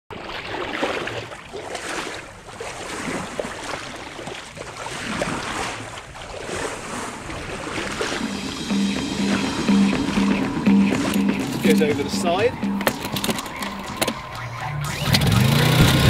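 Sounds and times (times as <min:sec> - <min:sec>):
water splashing along boat hull: 0:00.1 - 0:16.0.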